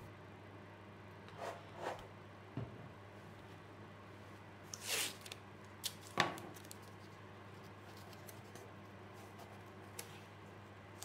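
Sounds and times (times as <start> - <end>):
tape tearing: 4.7 - 6.9.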